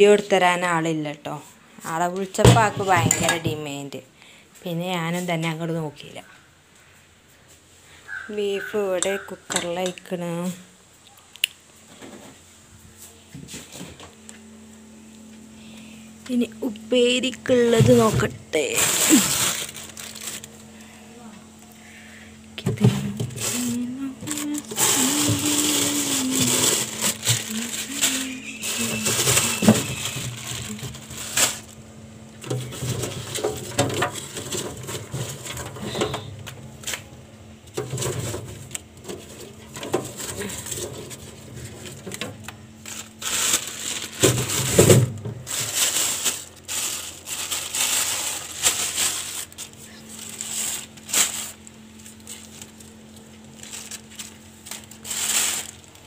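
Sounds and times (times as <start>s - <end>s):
plastic bags and newspaper rustling: 0.0s - 4.0s, 15.6s - 56.0s
low steady hum: 0.0s - 56.0s.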